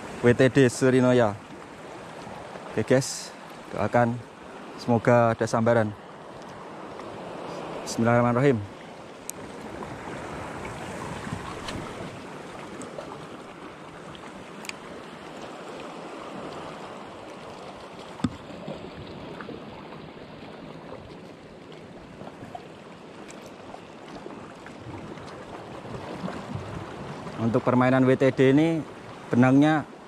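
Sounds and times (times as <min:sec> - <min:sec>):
waves lapping against rocks: 0:06.1 - 0:29.9.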